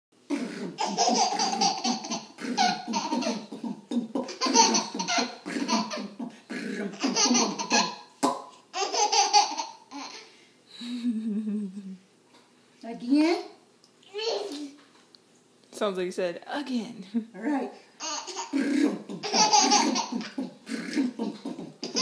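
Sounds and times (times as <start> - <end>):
baby laughing: 0.3 - 8.1, 8.7 - 10.3, 18.0 - 22.0.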